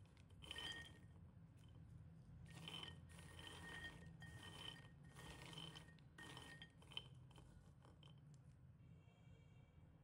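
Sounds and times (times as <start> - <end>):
peanuts rattling in ceramic bowl: 0.0 - 1.2, 2.5 - 8.3.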